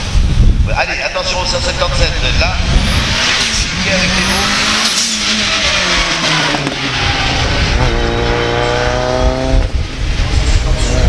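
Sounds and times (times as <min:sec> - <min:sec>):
race car engine passing: 0:01.6 - 0:11.0.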